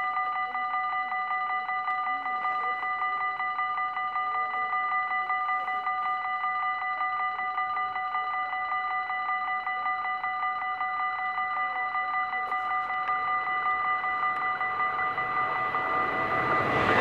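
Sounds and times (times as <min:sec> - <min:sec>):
level crossing bell ringing: 0:00.0 - 0:17.0.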